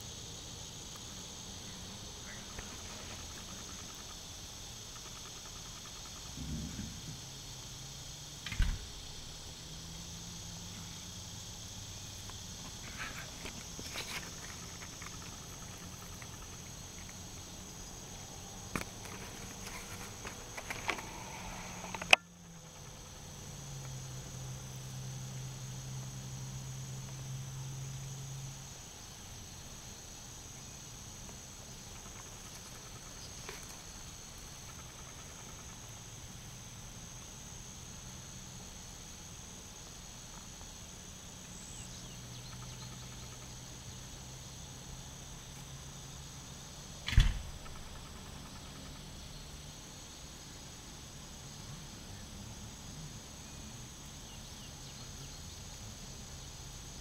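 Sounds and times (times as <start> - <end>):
insects chorus: 0.0 - 57.0
sharp click: 47.0 - 47.8.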